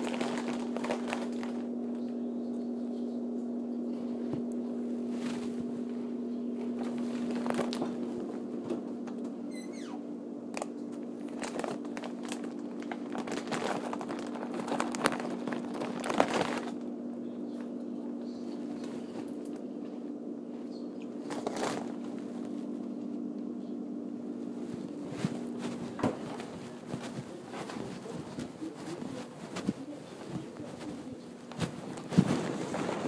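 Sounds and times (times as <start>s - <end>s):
irregular rustling: 0.0s - 2.0s, 4.0s - 8.8s, 11.2s - 16.8s, 18.4s - 20.6s, 21.2s - 23.2s, 24.3s - 33.0s
steady low hum: 0.0s - 33.0s.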